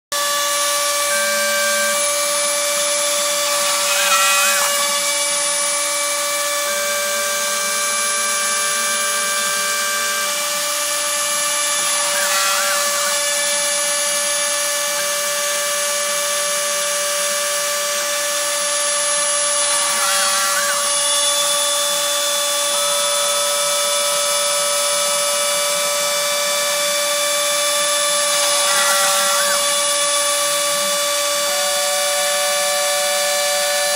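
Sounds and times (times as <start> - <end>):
rotary tool whining: 0.2 - 33.9
motor tones changing pitch: 30.5 - 33.9.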